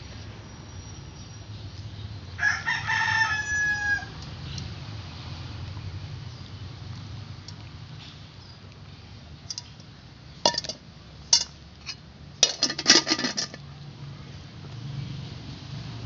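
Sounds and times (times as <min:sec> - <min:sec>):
pot and basin clattering: 0:10.5 - 0:11.5, 0:12.4 - 0:13.6.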